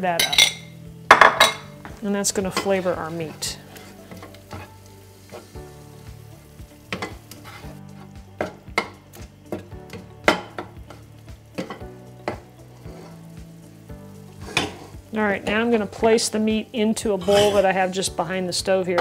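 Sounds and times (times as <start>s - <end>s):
meat sizzling in a frying pan: 0.0s - 19.0s
spatula scraping a pan: 2.4s - 5.6s, 6.9s - 8.9s, 11.6s - 13.3s, 14.3s - 16.3s, 17.0s - 18.0s.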